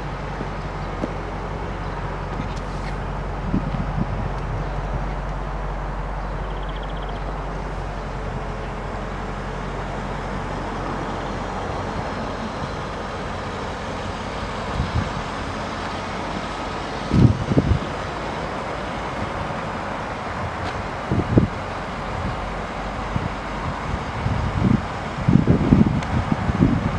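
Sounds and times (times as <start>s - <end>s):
low bumps: 0.0s - 26.9s
vehicle engine idling: 0.0s - 26.9s
wind on microphone: 2.3s - 7.4s, 14.6s - 15.6s, 17.0s - 18.2s, 20.2s - 26.9s.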